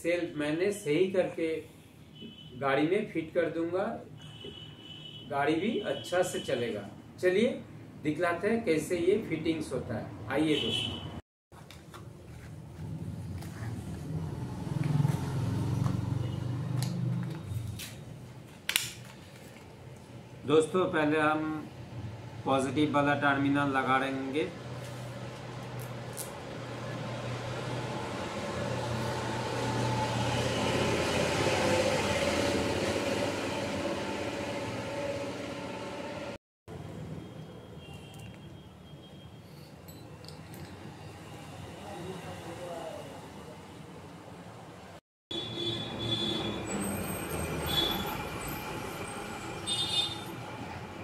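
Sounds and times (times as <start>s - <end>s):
passing vehicle engine drone: 12.8s - 17.1s, 26.6s - 36.4s.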